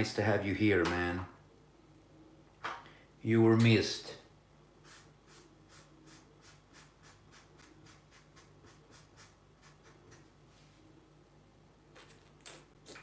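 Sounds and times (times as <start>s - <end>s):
faint low hum: 0.0s - 13.0s
marker scratching on paper: 4.8s - 10.3s.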